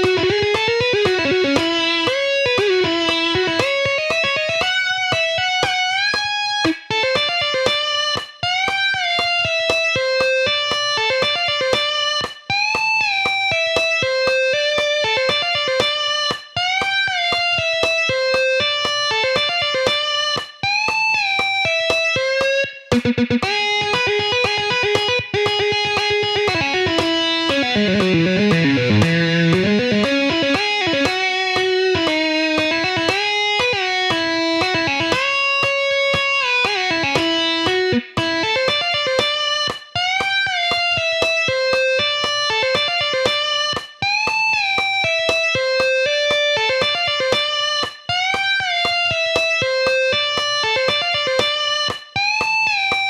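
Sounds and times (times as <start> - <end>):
overdriven electric guitar solo: 0.0 - 53.0.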